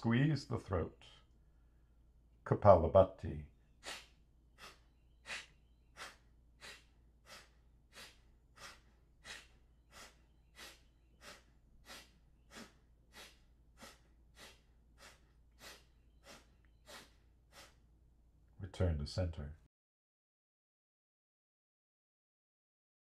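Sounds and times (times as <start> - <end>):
forceful nostril exhalations: 3.8 - 17.8.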